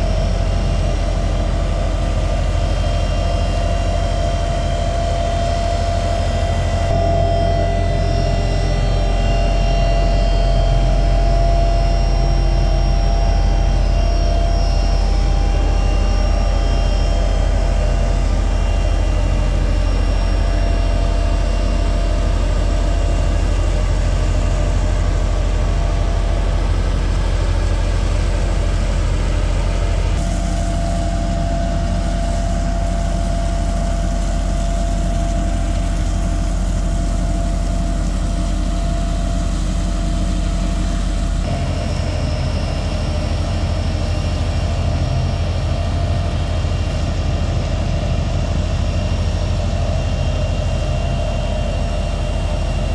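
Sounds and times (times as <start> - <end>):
diesel road roller engine: 0.0 - 52.9
thin steady whines: 0.0 - 52.9
water spraying from hose: 14.8 - 48.7.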